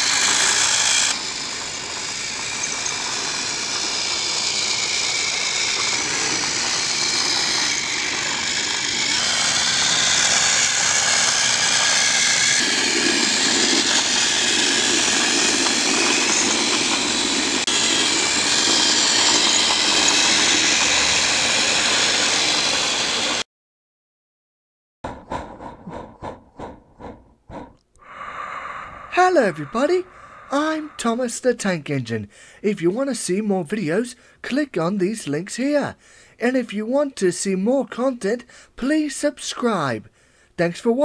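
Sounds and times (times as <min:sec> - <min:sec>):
toy train motors whirring: 0:00.0 - 0:23.4.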